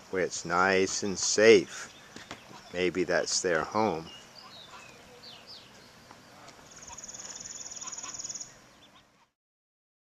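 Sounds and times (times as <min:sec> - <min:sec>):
faint high chirps: 0:04.0 - 0:09.3
high-pitched bird trill: 0:06.7 - 0:09.0.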